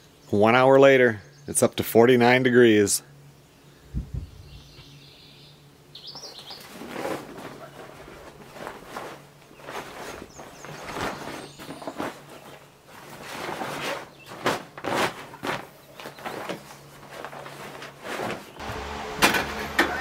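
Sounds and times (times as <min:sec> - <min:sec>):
bird chirp: 0:01.1 - 0:01.6, 0:03.6 - 0:06.8, 0:09.5 - 0:12.6
grill cover rustling: 0:06.2 - 0:20.0.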